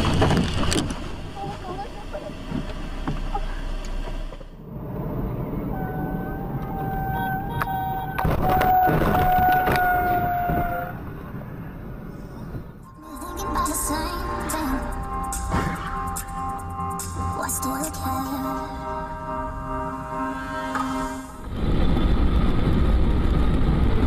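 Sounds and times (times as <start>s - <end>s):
tyres on wet road: 0.0s - 16.5s, 19.9s - 24.0s
car horn held: 5.7s - 11.0s.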